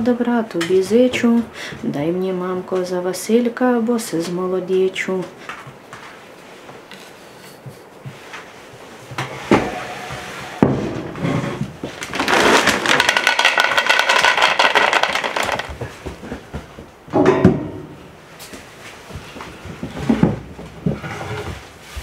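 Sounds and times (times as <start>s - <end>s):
kibble rattling into plastic bowl: 12.0s - 15.8s
knocks: 14.1s - 18.0s.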